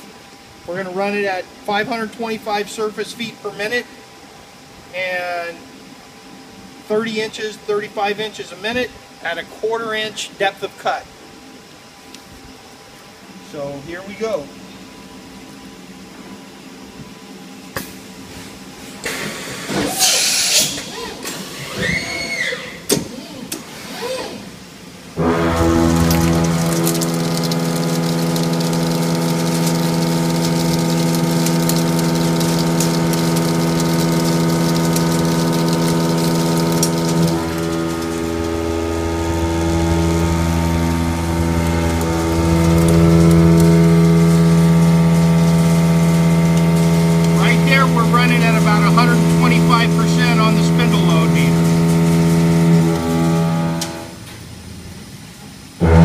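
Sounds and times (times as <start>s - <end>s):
loud burst of air hiss: 19.0s - 22.2s
machine whine rising and falling: 25.2s - 56.0s.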